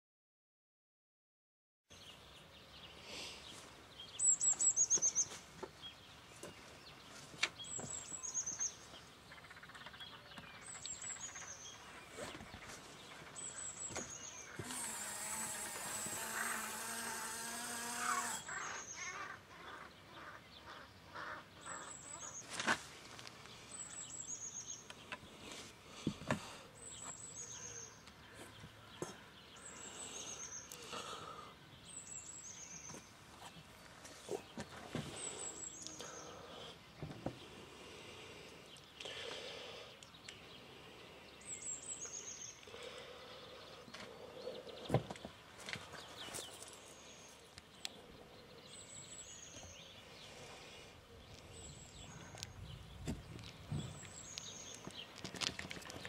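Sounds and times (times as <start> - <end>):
small birds chirping: 1.9 - 56.0
small electric motor humming: 14.5 - 18.6.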